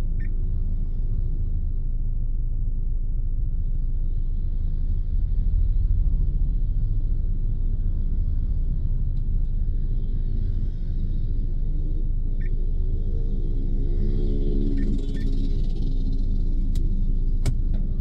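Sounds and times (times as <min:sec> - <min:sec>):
engine and road rumble: 0:00.0 - 0:18.0.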